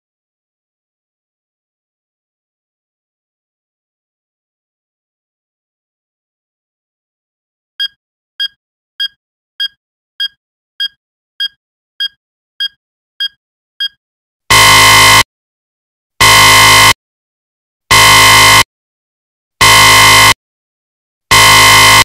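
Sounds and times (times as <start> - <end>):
loud buzzer blasts: 14.5 - 15.3, 16.2 - 17.0, 17.9 - 18.7, 19.6 - 20.4, 21.3 - 22.0.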